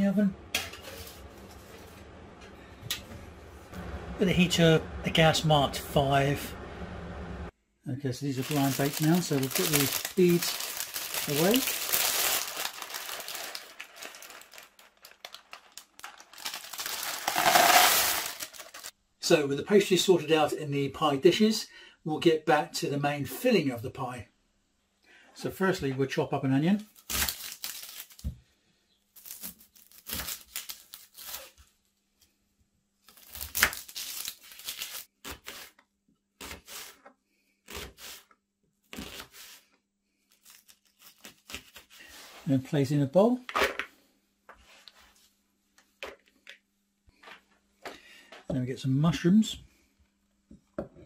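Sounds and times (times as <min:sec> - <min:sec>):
baking paper crinkling: 0:08.2 - 0:18.9, 0:26.8 - 0:28.3, 0:29.2 - 0:31.8, 0:33.0 - 0:35.8, 0:40.3 - 0:42.4
baking beans clicking and rattling: 0:11.2 - 0:18.9
beans tipped into plastic tub: 0:15.3 - 0:18.9
onion skin being peeled and torn: 0:26.9 - 0:28.4, 0:29.1 - 0:31.8, 0:33.0 - 0:35.8, 0:40.3 - 0:42.0.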